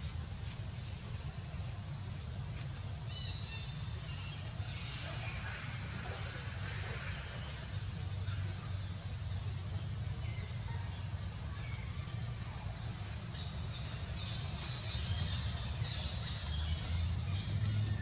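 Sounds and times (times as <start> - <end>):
steady low rumble: 3.8 - 18.0.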